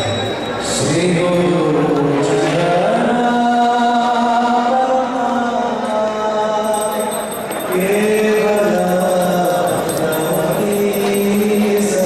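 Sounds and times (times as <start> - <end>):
jingling metallic percussion: 6.6 - 12.0.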